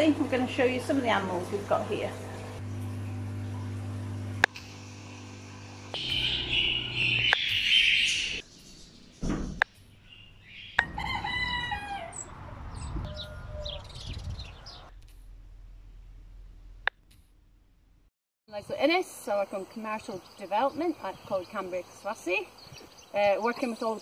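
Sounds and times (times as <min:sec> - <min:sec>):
rooster crowing: 0:10.8 - 0:14.8.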